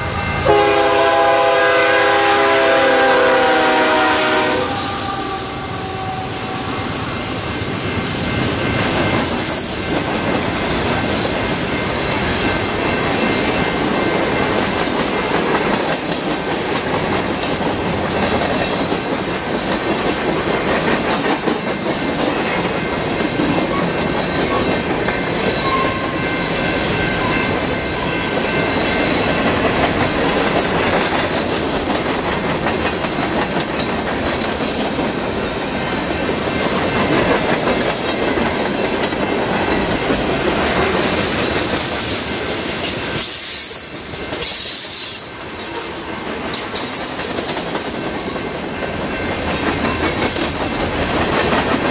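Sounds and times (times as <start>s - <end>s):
train wheels rumbling on rails: 0.0s - 51.9s
high wheel squeal: 43.2s - 45.8s.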